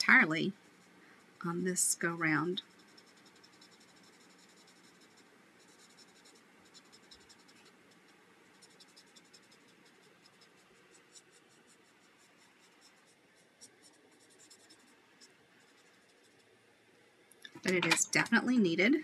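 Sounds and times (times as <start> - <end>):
marker scratching on cardstock: 2.4 - 16.5.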